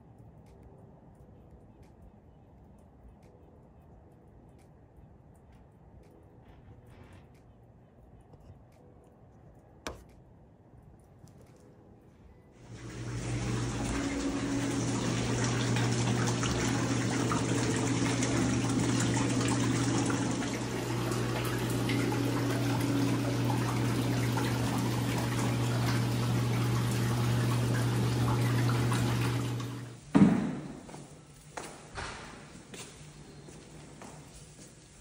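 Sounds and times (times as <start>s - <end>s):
steady low hum: 0.0s - 30.1s
water running into bathtub: 12.6s - 30.0s.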